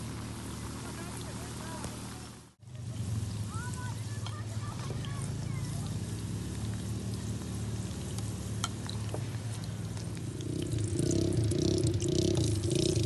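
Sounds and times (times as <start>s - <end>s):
chips sizzling in hot oil: 3.1s - 12.9s
steady low hum: 5.2s - 13.0s
small oil pops: 6.5s - 11.2s.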